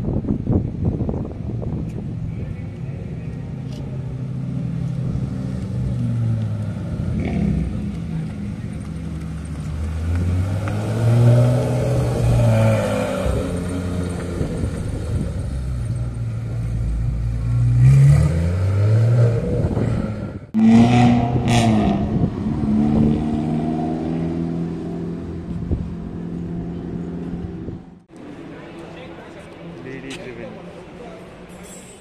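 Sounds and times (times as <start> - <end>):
sports car engine pulling away: 2.8 - 27.8.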